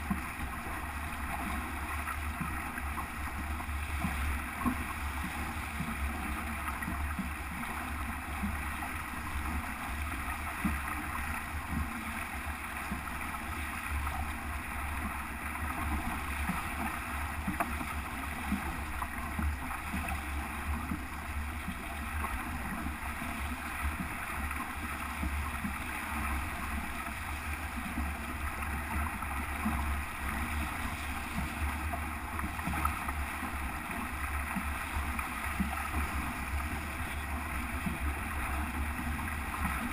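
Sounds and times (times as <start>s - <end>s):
water rushing past hull: 0.0s - 39.9s
water splashes: 0.0s - 39.9s.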